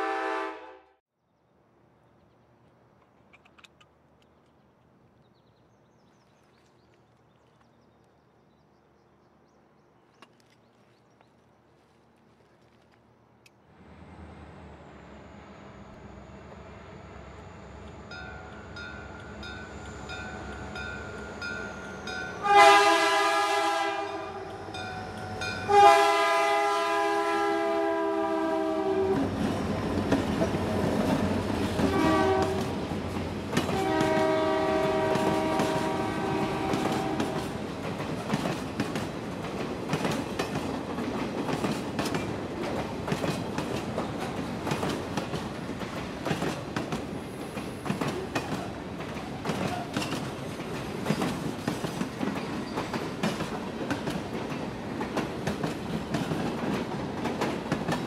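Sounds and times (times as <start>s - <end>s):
locomotive air horn: 0.0s - 1.0s, 22.3s - 29.2s, 31.8s - 32.8s, 33.7s - 37.6s
train wheels clacking over rail joints: 36.6s - 58.0s.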